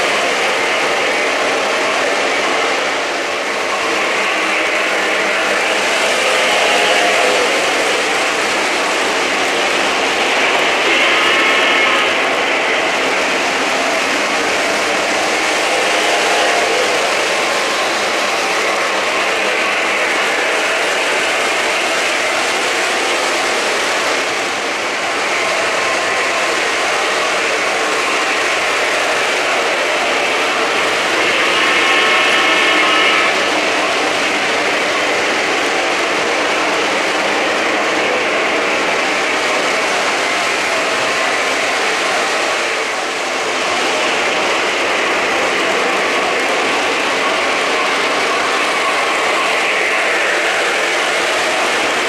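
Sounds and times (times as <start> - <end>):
model train wheels on rails: 0.0 - 52.0.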